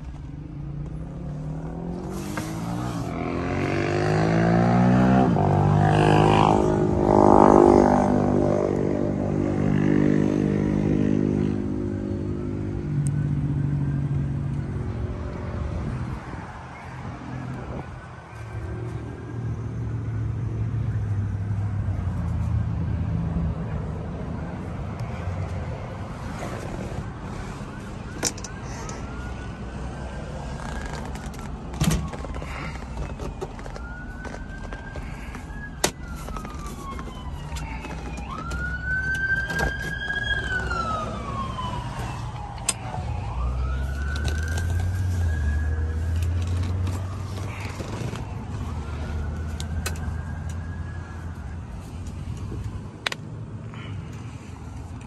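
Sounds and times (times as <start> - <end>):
siren wailing: 9.4 - 21.1, 24.8 - 52.3.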